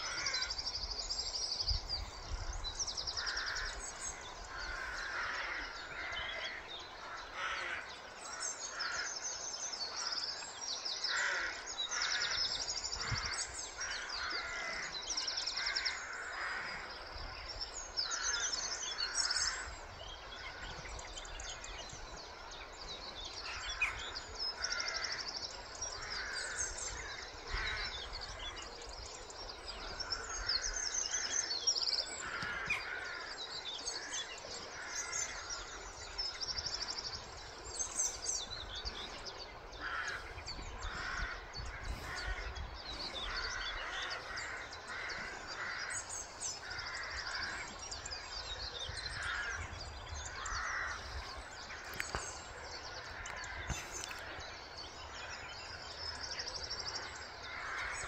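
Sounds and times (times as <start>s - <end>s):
crows cawing: 0.0s - 0.5s, 4.5s - 9.2s, 11.1s - 12.4s, 13.0s - 16.9s, 23.5s - 25.4s, 26.0s - 28.0s, 32.2s - 35.8s, 39.8s - 42.6s, 43.2s - 47.7s, 49.0s - 51.1s, 57.4s - 58.0s
small birds chirping: 9.6s - 58.0s.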